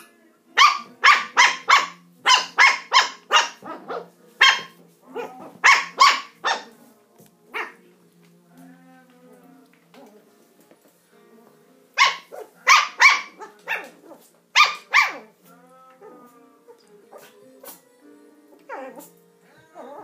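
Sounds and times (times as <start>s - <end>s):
puppy yapping: 0.6s - 6.7s, 12.0s - 15.4s.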